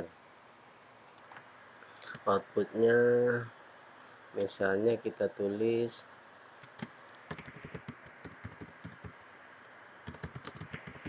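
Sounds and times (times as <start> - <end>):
computer keyboard typing: 6.6 - 9.1, 10.1 - 11.0.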